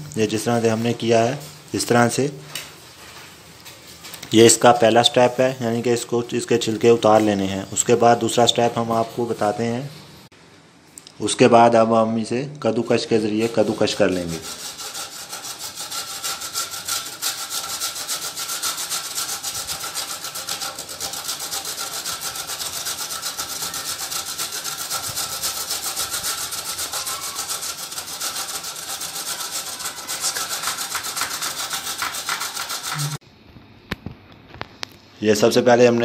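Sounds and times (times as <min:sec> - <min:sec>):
pumpkin grated on metal grater: 0:13.4 - 0:33.2.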